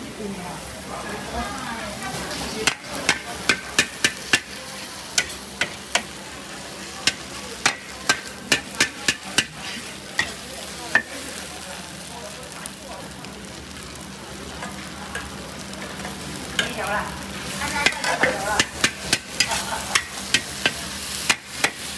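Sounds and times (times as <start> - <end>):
frying sizzle: 0.0 - 21.9
metal spatula clanking on wok: 2.6 - 6.1, 7.0 - 11.2, 17.8 - 21.9.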